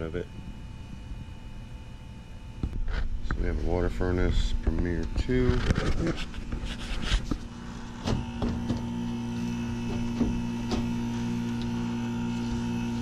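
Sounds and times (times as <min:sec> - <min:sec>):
heat pump electrical hum: 0:00.0 - 0:13.0.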